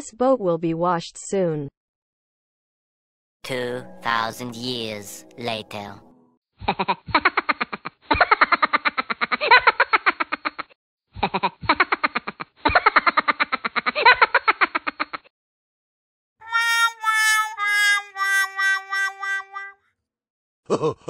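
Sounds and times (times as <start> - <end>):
cartoon character cackling laughter: 6.6 - 15.3, 20.7 - 21.0.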